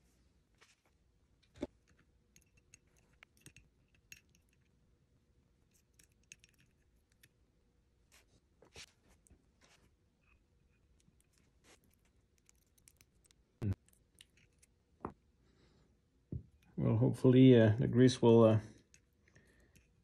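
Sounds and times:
faint clicks and metal taps: 0:01.4 - 0:04.8, 0:05.7 - 0:07.4, 0:18.7 - 0:20.0.

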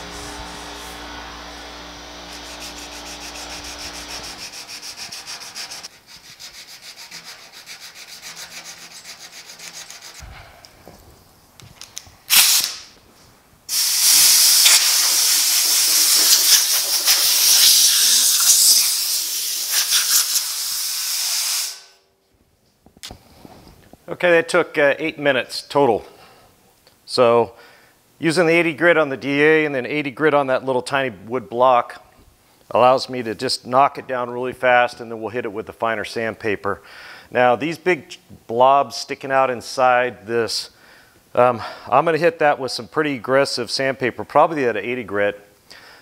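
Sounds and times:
sandpaper scraping metal: 0:00.0 - 0:01.4, 0:02.2 - 0:10.2, 0:13.7 - 0:21.8
compressed air hiss: 0:00.0 - 0:05.9, 0:12.3 - 0:12.9, 0:13.7 - 0:22.0.

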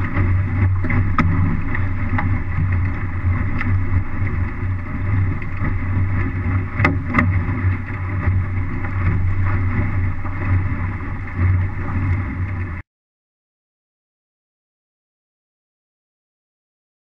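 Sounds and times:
water rushing past hull: 0:00.0 - 0:12.8
wind buffeting microphone: 0:00.0 - 0:12.8.

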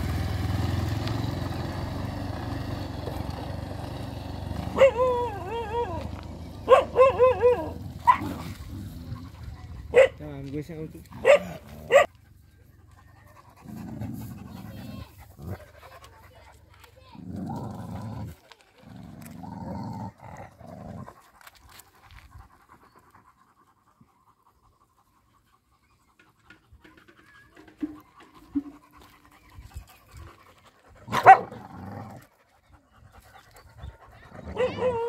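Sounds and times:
dog growling: 0:04.5 - 0:10.0, 0:11.0 - 0:12.1, 0:13.4 - 0:16.1, 0:17.1 - 0:21.6, 0:31.0 - 0:32.4, 0:34.1 - 0:35.0
dog barking: 0:04.6 - 0:08.4, 0:09.9 - 0:10.2, 0:11.2 - 0:12.1, 0:31.1 - 0:31.6, 0:34.4 - 0:35.0.

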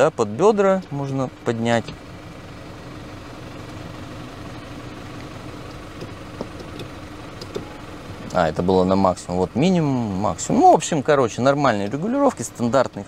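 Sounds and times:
power seat motor running: 0:00.3 - 0:10.3.

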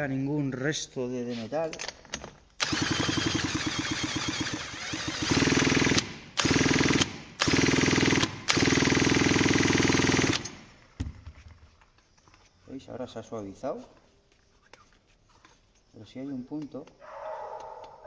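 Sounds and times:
chainsaw engine spun by power tool: 0:02.6 - 0:10.6.

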